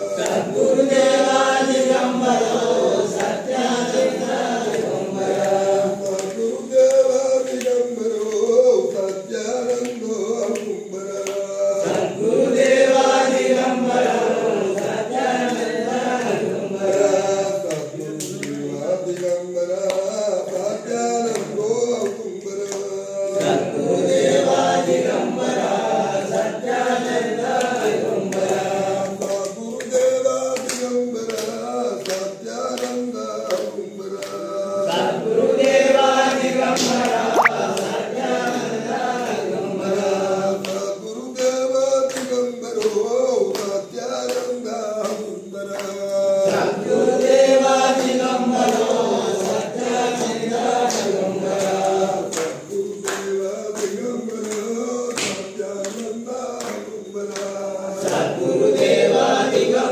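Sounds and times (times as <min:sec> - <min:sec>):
group singing a chant: 0:00.0 - 0:59.9
hand claps: 0:00.1 - 0:59.9.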